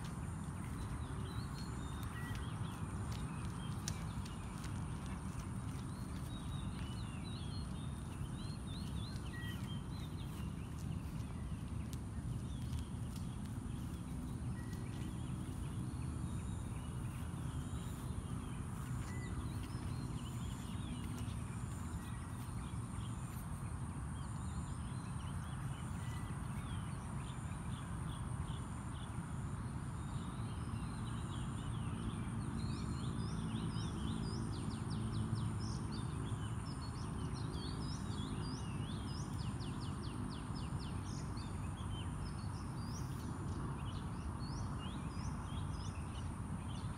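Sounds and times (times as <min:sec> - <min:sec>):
steady low rumble: 0:00.0 - 0:29.1.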